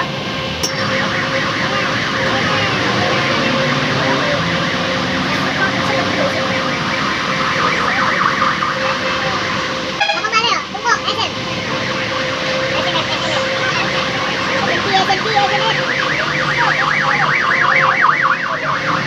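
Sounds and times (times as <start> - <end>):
electronic alarm warbling: 0.5 - 19.0.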